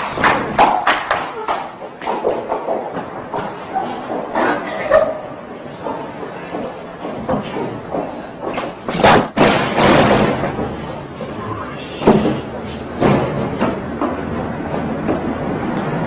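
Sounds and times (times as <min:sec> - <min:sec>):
heavy thuds: 0:05.6 - 0:11.2, 0:12.0 - 0:16.0
door banging: 0:08.8 - 0:10.9.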